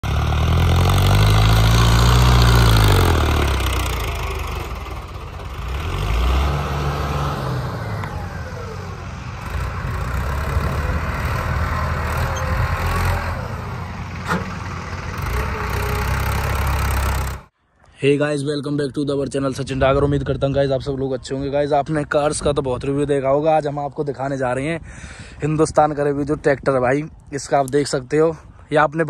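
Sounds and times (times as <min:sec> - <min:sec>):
tractor engine revving: 0:00.0 - 0:17.5.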